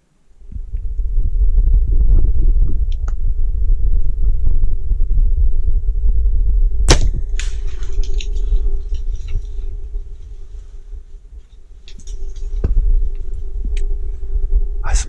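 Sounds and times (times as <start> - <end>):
low rumble: 0.0 - 15.0
crackling and rustling: 7.0 - 14.3.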